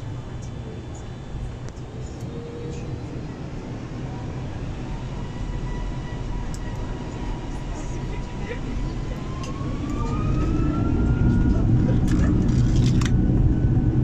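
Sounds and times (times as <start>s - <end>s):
jet engine rumble in cabin: 0.0s - 14.0s.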